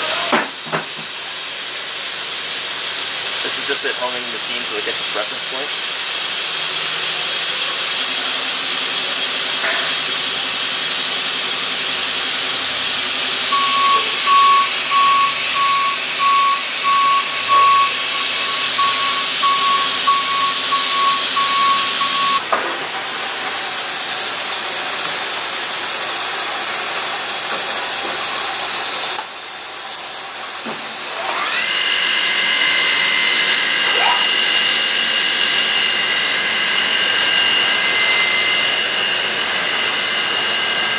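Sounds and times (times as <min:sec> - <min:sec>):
rising machine whine: 0:12.4 - 0:22.5, 0:31.2 - 0:40.8
high beeps: 0:13.5 - 0:22.4.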